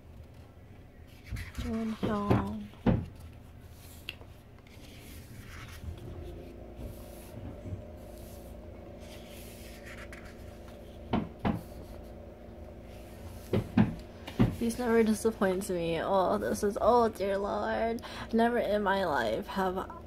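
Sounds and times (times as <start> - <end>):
faint steady hum: 0.0 - 20.0
book pages turning: 1.1 - 12.1.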